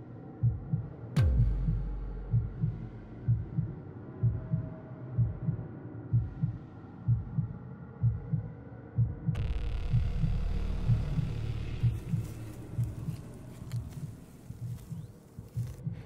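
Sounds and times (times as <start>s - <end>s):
heartbeat double thump: 0.4s - 4.6s, 9.0s - 16.0s
low hum: 9.4s - 15.8s.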